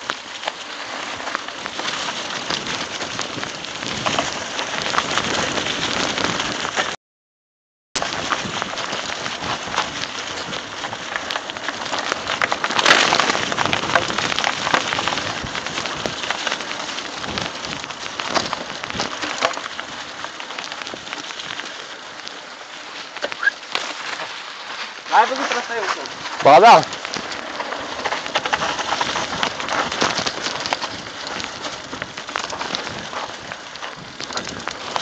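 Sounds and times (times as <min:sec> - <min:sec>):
tyres crackling over leaves and dirt: 0:00.0 - 0:07.0, 0:08.0 - 0:35.0.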